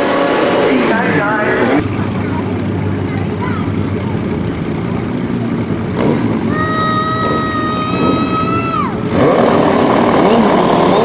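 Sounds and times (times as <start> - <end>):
motorcycle engines running: 0.0 - 11.0.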